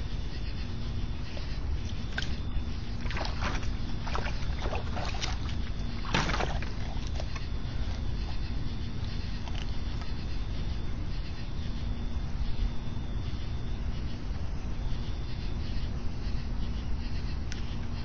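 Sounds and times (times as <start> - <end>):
water splashing in a plastic pool: 1.3 - 8.5.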